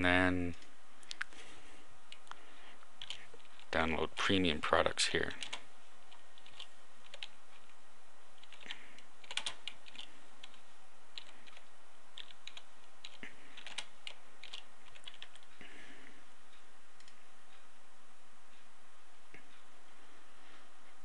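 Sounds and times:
computer keyboard keys clicking: 3.0s - 3.7s, 6.4s - 7.3s, 8.4s - 10.6s, 11.2s - 15.5s.

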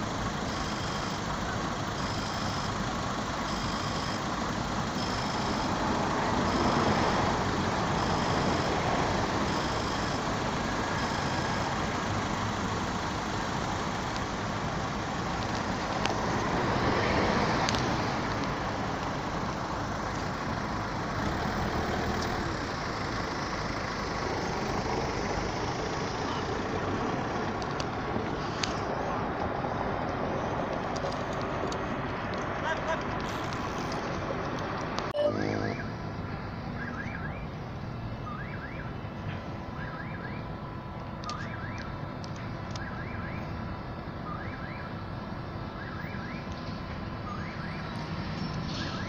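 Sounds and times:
railroad crossing signal tone: 0.0s - 11.8s, 35.2s - 36.1s
vehicle engines rumbling: 0.0s - 49.0s.

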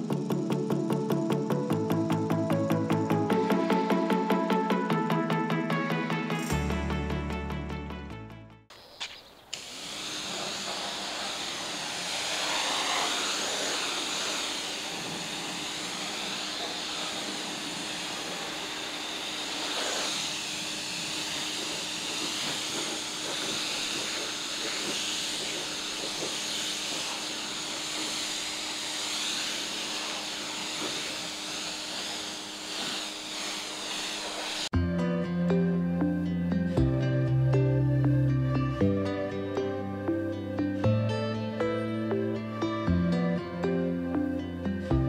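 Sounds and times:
pressure washer motor hum: 0.0s - 7.1s, 9.5s - 34.7s
water jet spraying onto car: 9.6s - 34.7s.

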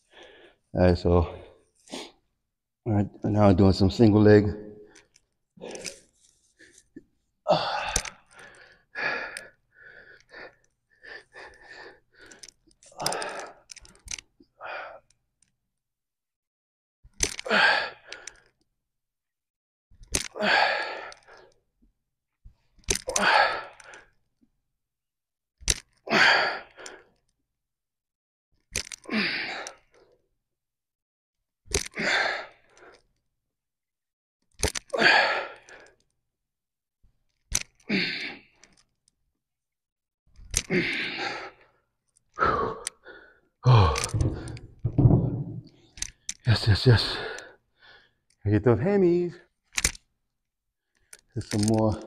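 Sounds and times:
man breathing out hard: 42.4s - 45.0s.

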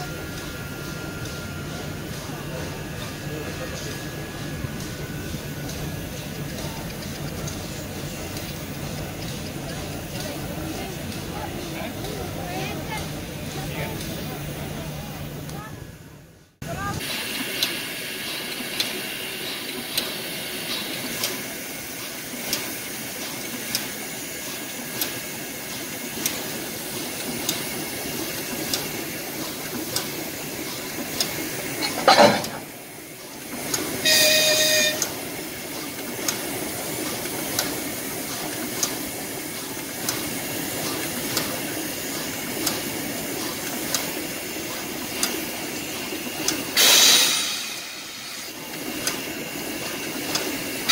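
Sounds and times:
steam locomotive hissing: 0.0s - 50.9s
horn or whistle blast: 34.0s - 35.1s.

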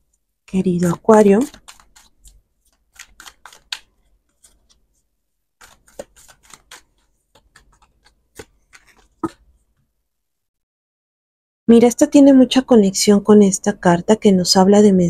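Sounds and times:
cards being shuffled: 0.8s - 9.6s.

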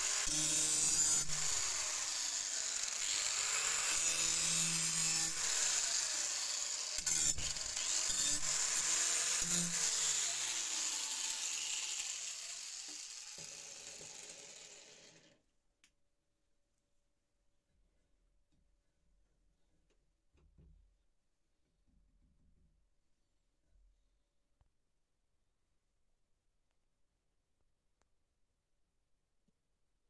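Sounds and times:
angle grinder on steel: 0.0s - 15.4s.

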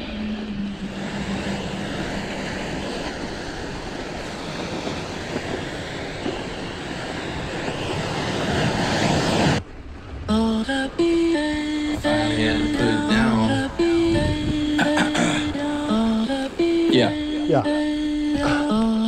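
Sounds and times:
wind on microphone: 0.0s - 19.0s
held sung note: 10.3s - 19.0s.

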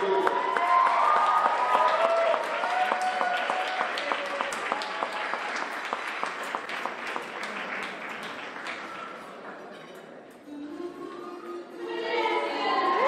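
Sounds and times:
crowd applauding: 0.0s - 9.6s.

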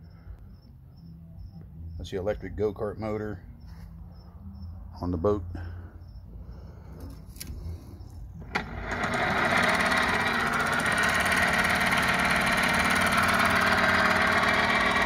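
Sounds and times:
electric motor humming: 7.0s - 15.0s.

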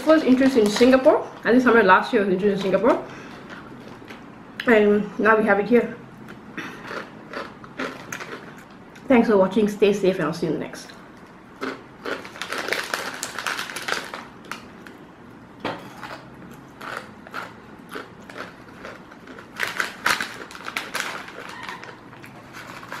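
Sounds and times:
plastic packet crinkling: 0.0s - 1.1s, 12.1s - 14.7s, 18.3s - 23.0s
dry snack crunching: 6.7s - 8.8s, 11.6s - 15.0s, 15.9s - 23.0s.

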